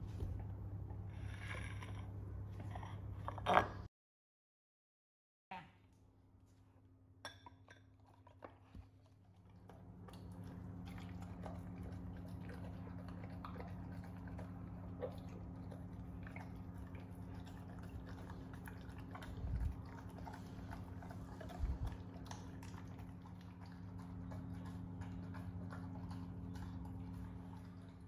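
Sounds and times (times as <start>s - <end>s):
dog chewing: 8.0s - 28.0s
steady low hum: 8.0s - 28.0s
dog lapping: 8.6s - 28.0s.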